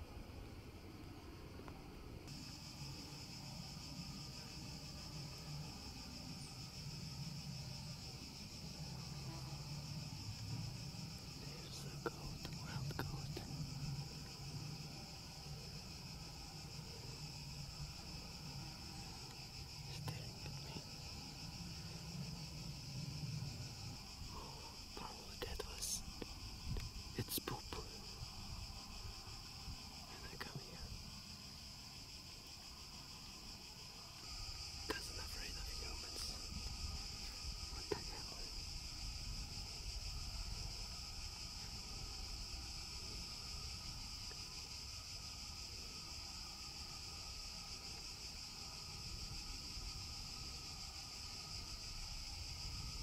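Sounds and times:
high-pitched insect chorus: 0:00.0 - 0:53.0.

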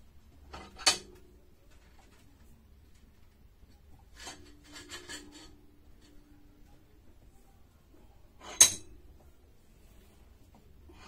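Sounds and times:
sharp metallic clink: 0:08.5 - 0:08.9.

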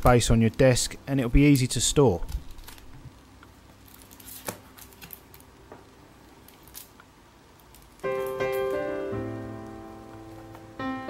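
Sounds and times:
cardboard rustling: 0:03.8 - 0:05.5
piano music: 0:08.0 - 0:11.0.

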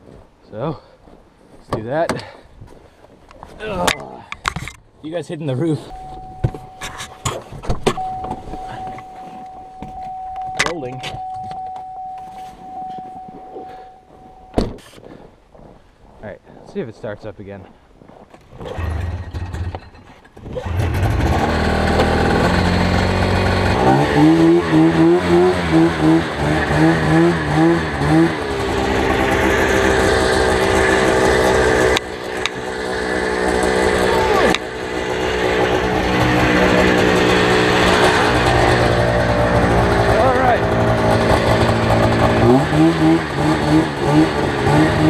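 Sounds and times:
snowmobile engine revving: 0:20.5 - 0:45.0.

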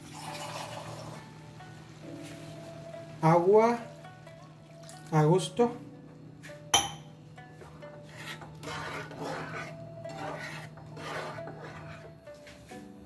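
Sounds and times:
spatula scraping frying pan: 0:07.6 - 0:12.8.

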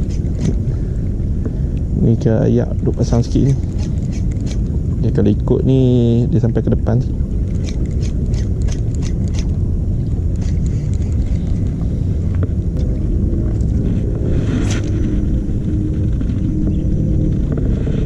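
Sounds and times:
wind buffeting microphone: 0:00.0 - 0:18.0
brief swish: 0:14.4 - 0:15.0.

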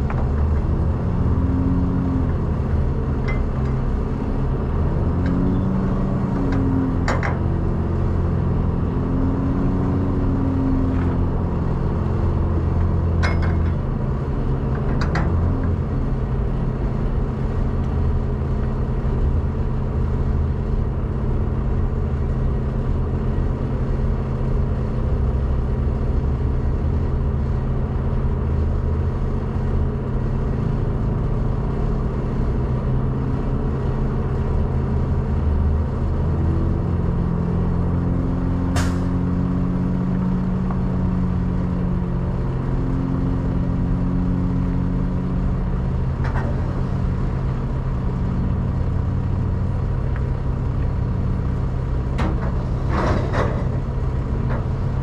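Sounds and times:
metallic clank: 0:03.3 - 0:03.8, 0:13.2 - 0:13.9
diesel truck engine idling: 0:37.7 - 0:55.0.

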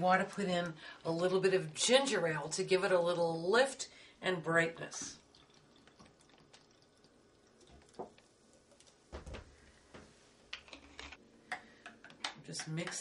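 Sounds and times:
drink pouring and fizzing: 0:04.7 - 0:09.2.

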